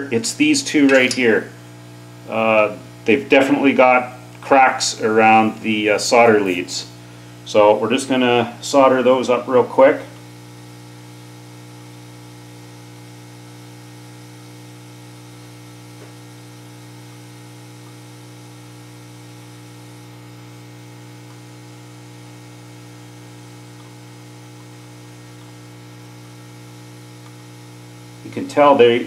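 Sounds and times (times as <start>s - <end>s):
electrical mains hum: 0.0s - 29.0s.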